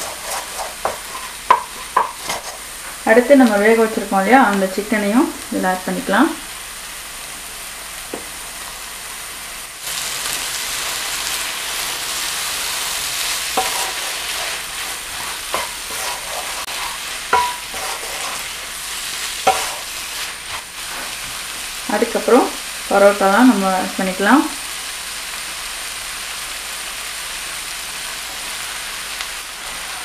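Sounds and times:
wooden spatula stirring food: 0.0s - 3.0s, 12.1s - 21.6s
food sizzling in a wok: 0.0s - 30.0s
spatula knocking against pan: 0.8s - 2.2s, 17.3s - 17.7s.

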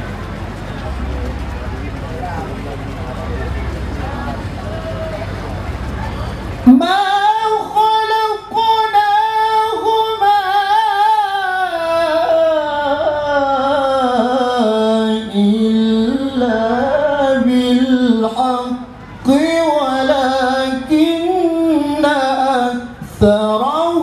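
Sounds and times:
man reciting melodically: 6.6s - 24.0s.

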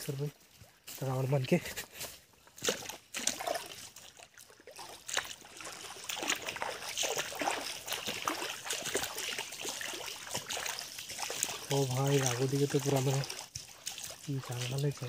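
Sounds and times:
stream babbling over stones: 2.6s - 15.0s.

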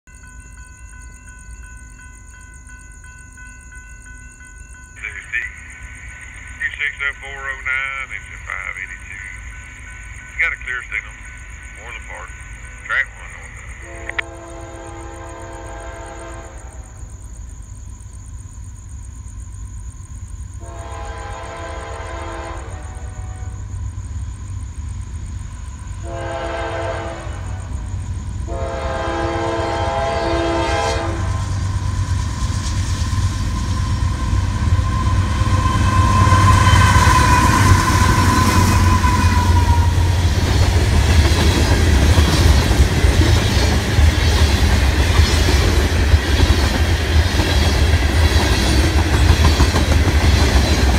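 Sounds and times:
train air horn blasts: 13.8s - 16.9s, 20.6s - 23.6s, 26.0s - 27.6s, 28.5s - 31.6s, 34.8s - 40.2s.

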